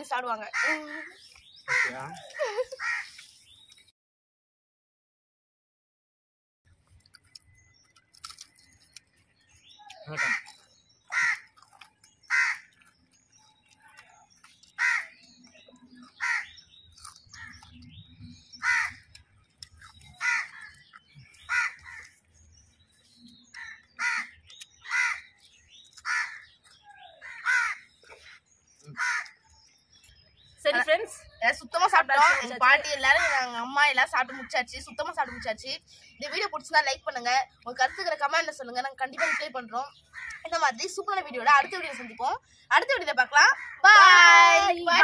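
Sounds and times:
crow cawing: 0.5 - 2.1, 2.8 - 3.1, 10.2 - 10.5, 11.1 - 11.5, 12.3 - 12.7, 14.8 - 15.2, 16.2 - 16.5, 18.6 - 19.0, 20.2 - 20.8, 21.5 - 22.1, 23.6 - 25.3, 26.0 - 26.5, 27.2 - 28.4, 29.0 - 29.4, 39.2 - 40.5, 43.5 - 43.9.

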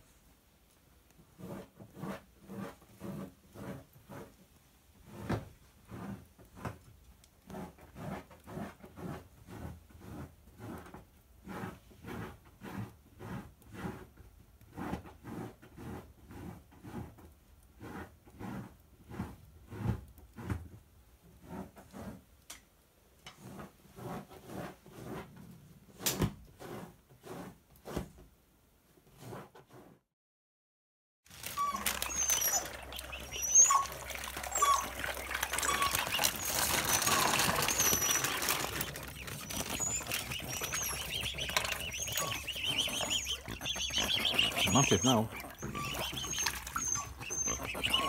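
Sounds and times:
dog scratching bedding: 31.3 - 48.0.

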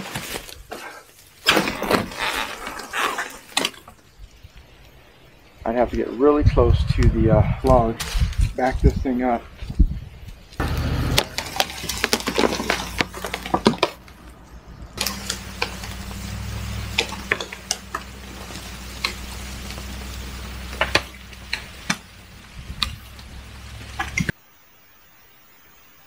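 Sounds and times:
twigs snapping and scraping: 0.0 - 5.0, 10.2 - 24.3
truck engine running: 10.6 - 24.3.

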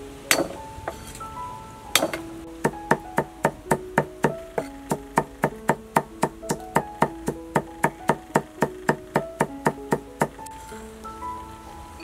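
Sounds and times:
soft melodic background music: 0.0 - 12.0
cleaver chopping on wooden block: 2.0 - 5.0.

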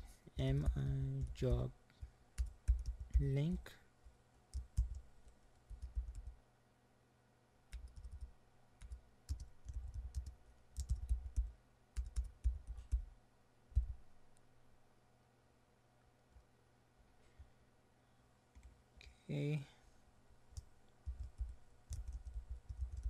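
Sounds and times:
typing on computer keyboard: 2.4 - 3.3, 4.5 - 5.0, 5.7 - 6.3, 7.7 - 13.0, 20.6 - 23.0.

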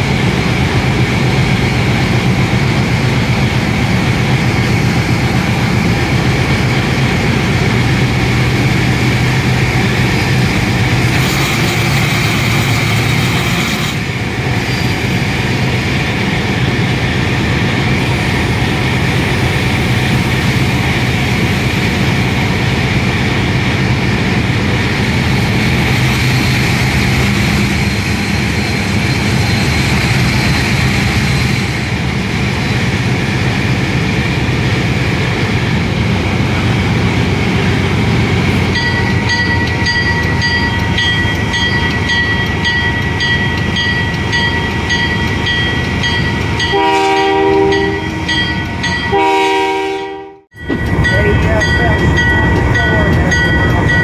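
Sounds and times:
wheel and rail noise: 0.0 - 49.4, 50.6 - 54.0
diesel locomotive engine drone: 0.0 - 54.0
locomotive bell ringing: 38.6 - 54.0
air horn blasts: 46.7 - 48.3, 49.1 - 50.6.

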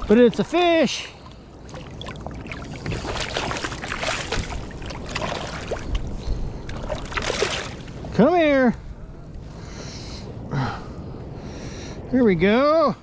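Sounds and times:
water splashing and trickling: 0.0 - 8.3.

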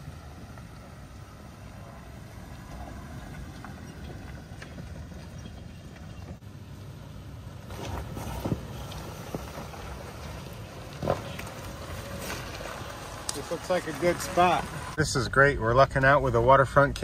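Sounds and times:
engine and tyres rumbling: 0.0 - 17.0
tyres crunching over rocks: 2.1 - 6.4, 7.6 - 15.0.

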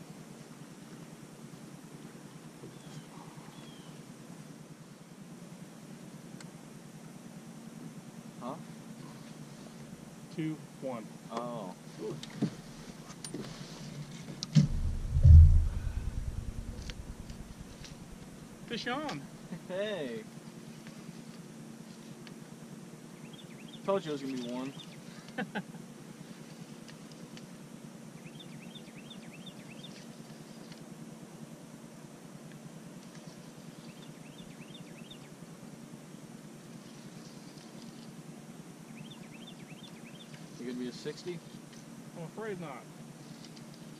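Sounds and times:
low rumble of river ambience: 0.0 - 43.9
sharp knock: 14.6 - 17.6
low rumbling thud: 14.6 - 17.8.

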